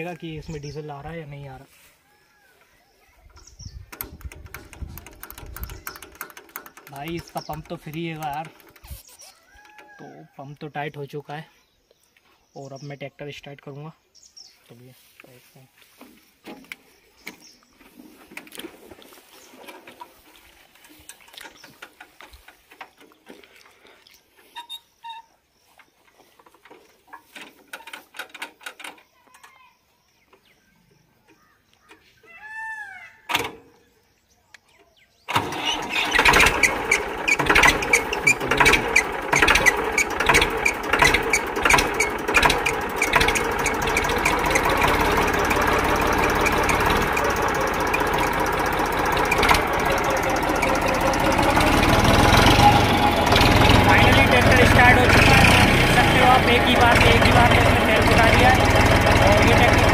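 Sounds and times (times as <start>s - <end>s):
diesel tractor engine starting: 3.3s - 9.8s, 35.3s - 59.9s
diesel engine knocking: 4.0s - 8.8s, 36.1s - 59.9s.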